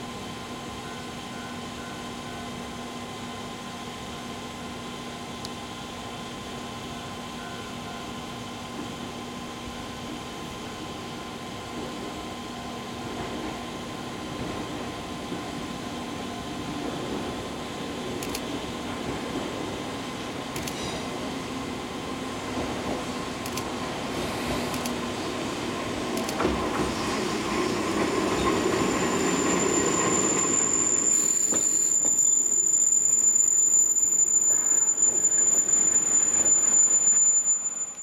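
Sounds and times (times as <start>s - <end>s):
train running on track: 0.0s - 38.0s
sharp clicks: 24.7s - 25.0s.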